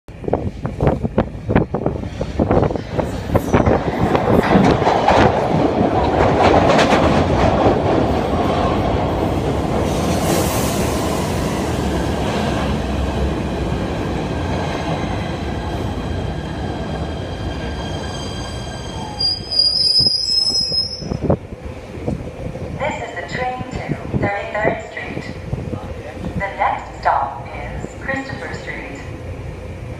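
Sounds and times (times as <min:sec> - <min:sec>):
train wheels rumbling on rail: 0:00.1 - 0:29.9
high brake squeal: 0:17.7 - 0:21.2.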